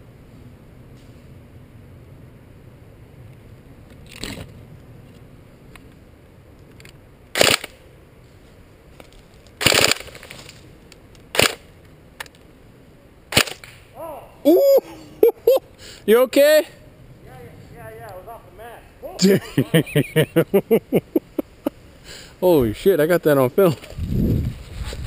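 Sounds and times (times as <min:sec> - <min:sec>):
airsoft gunfire cracks: 0:07.4 - 0:07.8, 0:09.6 - 0:10.2, 0:11.3 - 0:11.7, 0:13.3 - 0:13.8.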